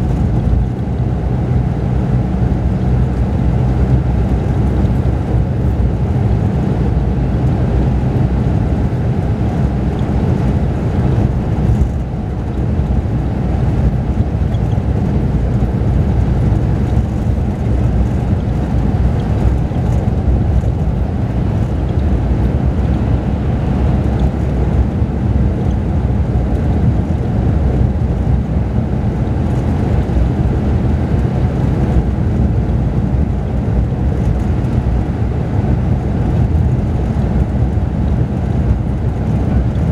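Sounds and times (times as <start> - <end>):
bus diesel engine droning: 0.0 - 39.9
road noise: 0.0 - 39.9.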